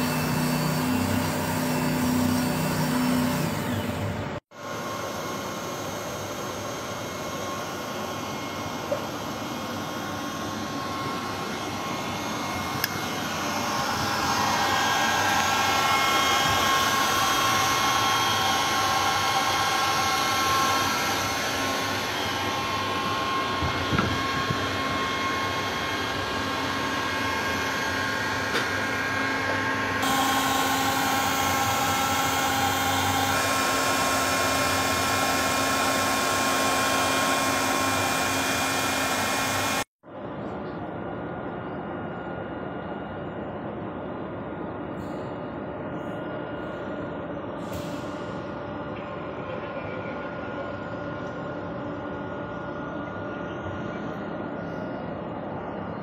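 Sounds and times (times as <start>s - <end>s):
steady whining tones: 0.0s - 39.9s
industrial machinery humming: 0.0s - 56.0s.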